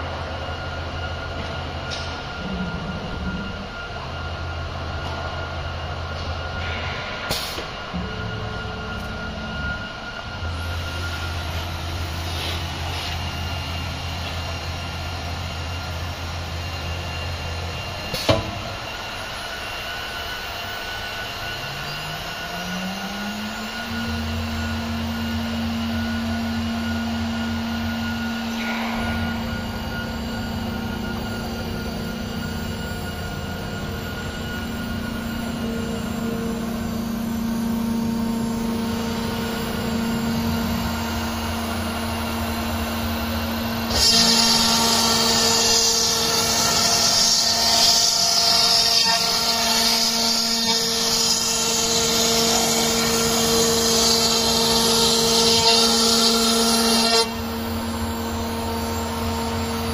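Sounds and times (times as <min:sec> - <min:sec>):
spindle rising tone: 0:00.0 - 0:18.1, 0:18.8 - 0:43.9
low hum: 0:00.0 - 0:19.3, 0:21.3 - 0:45.2
router motor whine: 0:07.8 - 0:59.9.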